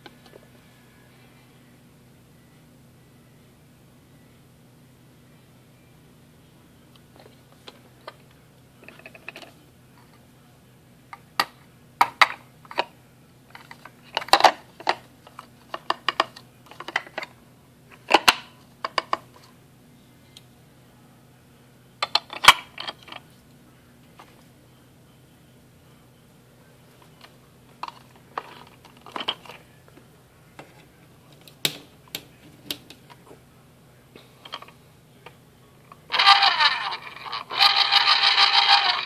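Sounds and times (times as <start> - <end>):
plastic juicer parts clattering: 27.8 - 29.6.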